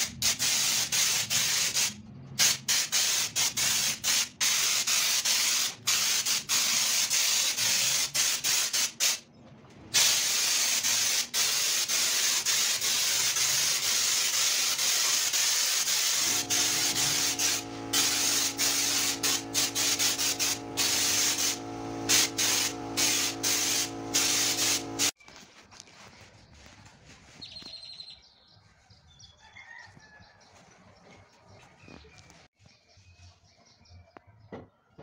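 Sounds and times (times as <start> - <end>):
compressed air spraying hiss: 0.2 - 9.2, 10.0 - 25.2
steady hum: 16.2 - 25.2.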